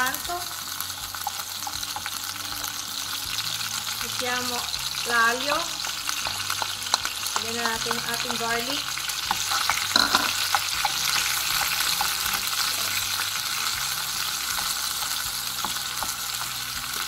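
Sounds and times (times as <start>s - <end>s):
garlic sizzling in oil: 0.0s - 17.0s
wooden spoon scraping and tapping pan: 6.3s - 13.1s.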